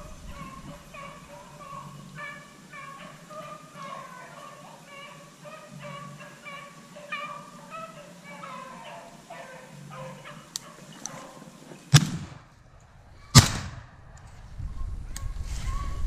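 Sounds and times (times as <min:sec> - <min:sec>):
hunting dogs baying: 0:00.0 - 0:11.9
loud shotgun blast: 0:11.9 - 0:12.5, 0:13.3 - 0:14.0.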